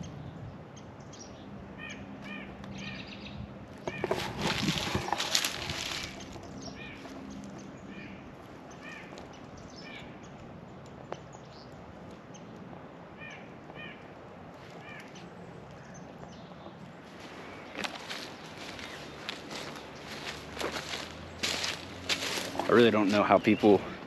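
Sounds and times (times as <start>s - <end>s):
footsteps crunching through dry leaves: 3.8s - 7.6s, 17.0s - 24.0s.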